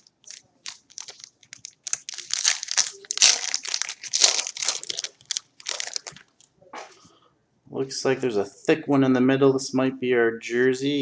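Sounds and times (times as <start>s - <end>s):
foil wrapper crinkling: 0.0s - 6.4s.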